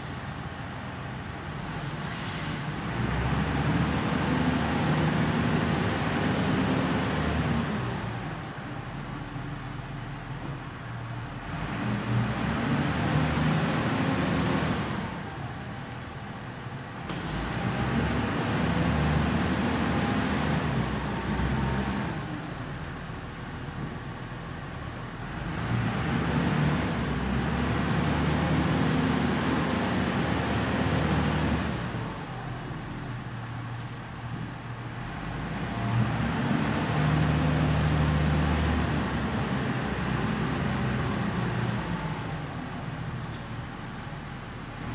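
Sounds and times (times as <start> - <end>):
wheel loader diesel engine: 0.0 - 44.9.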